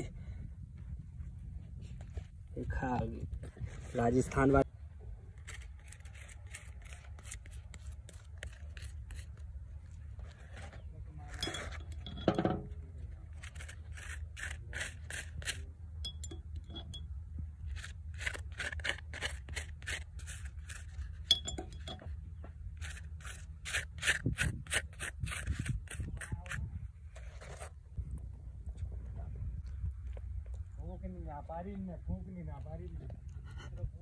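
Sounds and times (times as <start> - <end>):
knife scraping charred bread: 5.4 - 9.5, 13.3 - 17.0, 17.6 - 22.0, 22.8 - 27.7.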